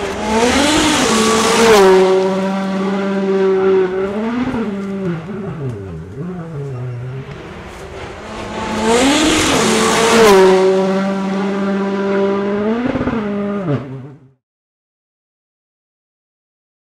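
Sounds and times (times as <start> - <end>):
rally car engine at high revs: 0.0 - 14.4
hiss of gravel and tyres: 7.3 - 9.9.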